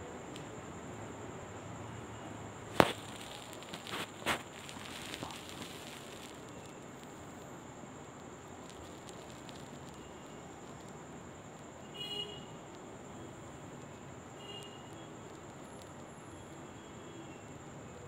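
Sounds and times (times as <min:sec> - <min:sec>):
steady hiss: 0:00.0 - 0:18.0
rustling on plastic mat: 0:02.7 - 0:06.5
faint ticks: 0:02.8 - 0:11.8, 0:12.5 - 0:16.7.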